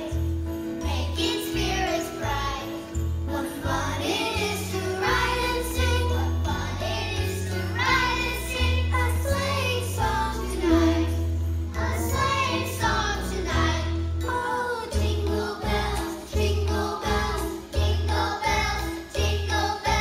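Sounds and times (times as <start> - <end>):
children's choir singing: 0.0 - 0.2, 0.8 - 20.0
instrumental accompaniment with bass: 0.0 - 20.0.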